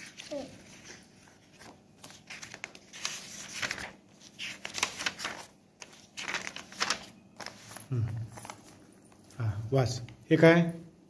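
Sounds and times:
paper pages turning: 0:00.0 - 0:07.8.

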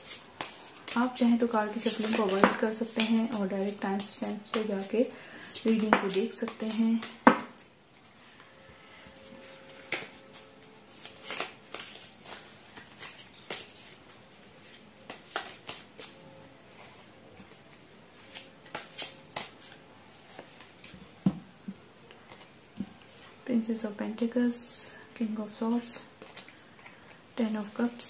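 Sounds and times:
cards being shuffled: 0:00.0 - 0:07.7, 0:09.7 - 0:16.2, 0:17.4 - 0:21.1, 0:26.2 - 0:27.0.

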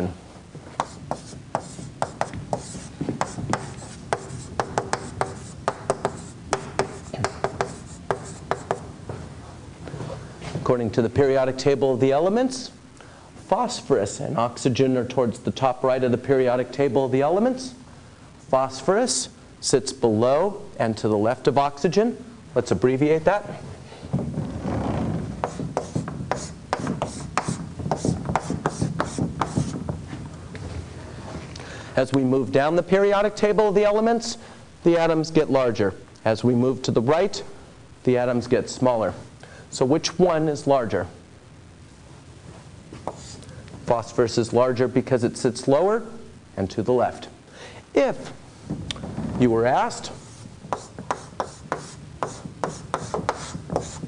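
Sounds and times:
writing taps and scrapes on a board: 0:00.8 - 0:08.9, 0:25.4 - 0:29.9, 0:43.0 - 0:43.4, 0:50.7 - 0:54.0.

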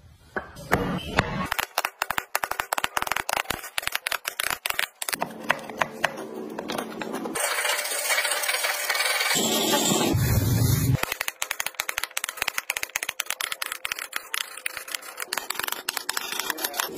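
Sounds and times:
handsaw rasping through wood: 0:13.9 - 0:16.9.

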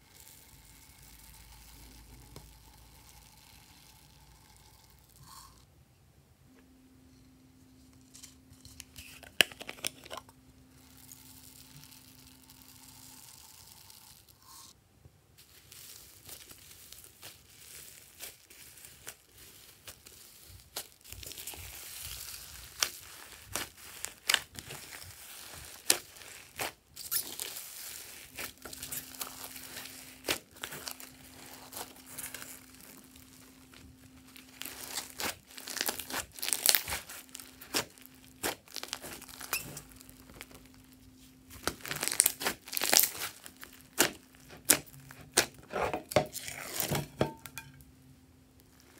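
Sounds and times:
slime clicking and crackling: 0:15.7 - 0:45.7.

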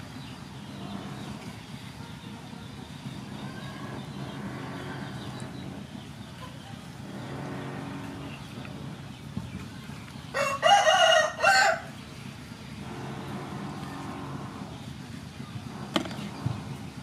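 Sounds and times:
rooster crowing: 0:10.4 - 0:11.9.

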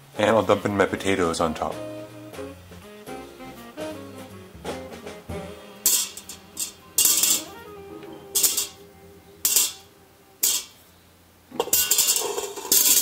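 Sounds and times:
faint background music: 0:00.0 - 0:13.0
potatoes tumbling into metal pot: 0:11.5 - 0:13.0.

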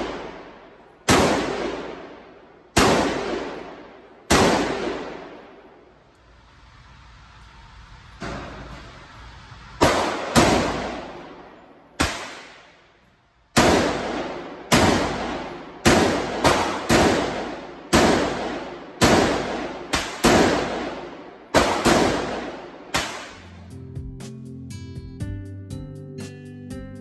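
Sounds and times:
pistol gunshots echoing: 0:00.0 - 0:05.7, 0:09.8 - 0:12.8, 0:13.5 - 0:23.5.

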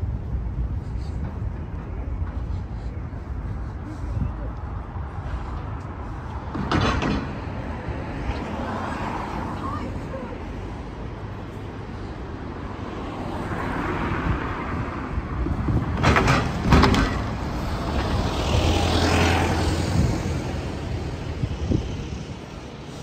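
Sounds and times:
vehicles passing: 0:00.0 - 0:23.0.

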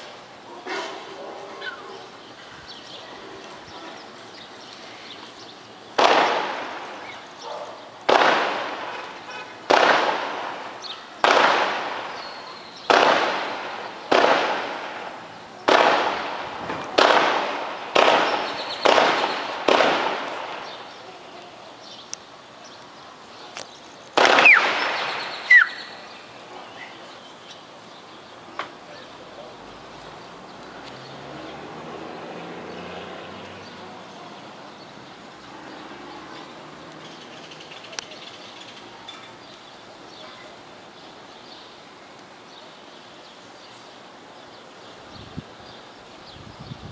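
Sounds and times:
distant gunshots with echo: 0:06.0 - 0:07.2, 0:08.1 - 0:20.9, 0:24.2 - 0:25.9.

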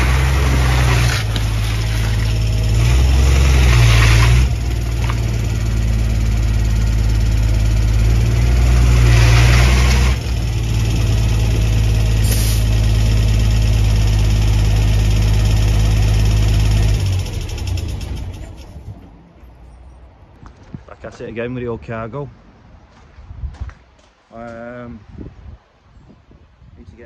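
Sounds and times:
truck diesel engine running: 0:00.0 - 0:19.2.

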